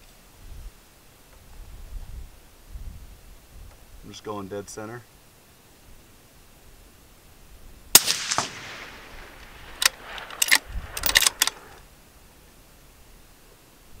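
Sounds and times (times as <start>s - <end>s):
rifle shot with echo: 7.9s - 11.8s
rifle bolt metallic clicks: 8.0s - 11.8s.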